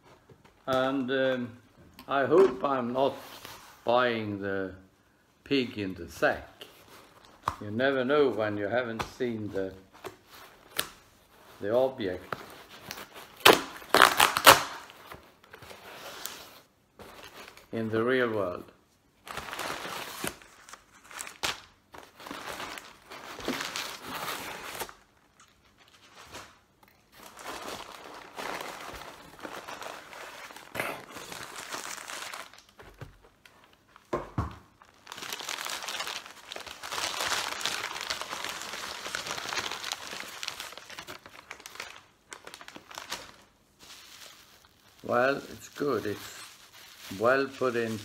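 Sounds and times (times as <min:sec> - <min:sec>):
packing paper rustling: 0:09.0 - 0:17.7, 0:19.2 - 0:34.1, 0:34.7 - 0:48.0.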